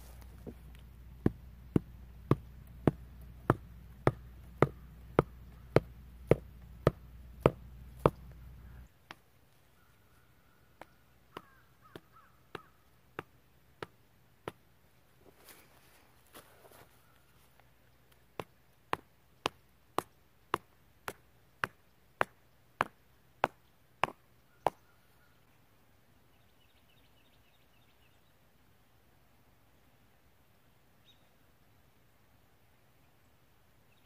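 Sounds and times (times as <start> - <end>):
hand tool striking wood: 1.2 - 8.2.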